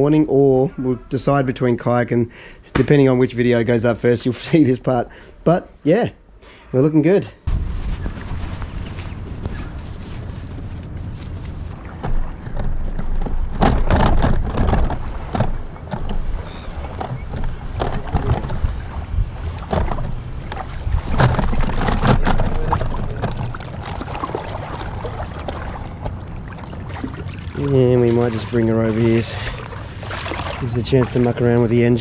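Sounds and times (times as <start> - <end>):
inflatable boat knocks and rattles: 11.7 - 32.0
wind buffeting microphone: 11.7 - 32.0.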